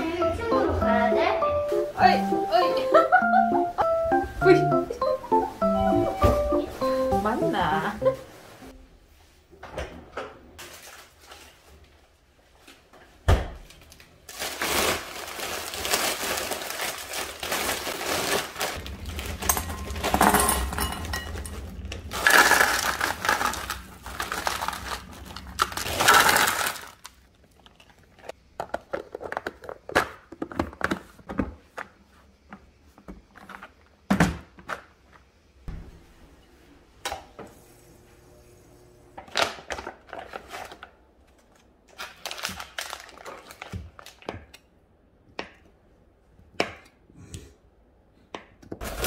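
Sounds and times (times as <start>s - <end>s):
plastic bag crinkling: 13.9s - 28.3s, 41.9s - 44.2s
frozen vegetables clattering into containers: 14.2s - 31.6s, 39.3s - 44.5s, 48.8s - 49.0s
containers clicking and knocking: 19.3s - 27.0s.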